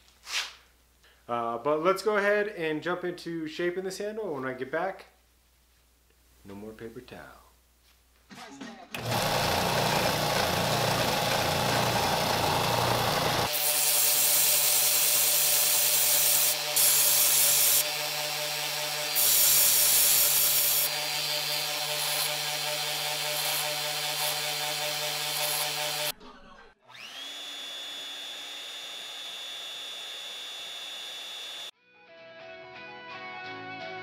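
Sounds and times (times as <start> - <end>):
band saw motor whining: 9.0 - 13.8, 26.9 - 31.7
belt sander grinding wood: 9.0 - 26.1, 26.9 - 31.7.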